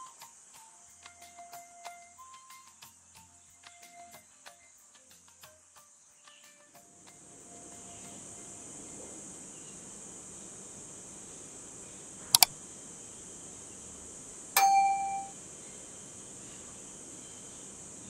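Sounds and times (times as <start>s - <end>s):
steady high hiss: 0.0s - 18.0s
bell ding: 14.6s - 15.3s.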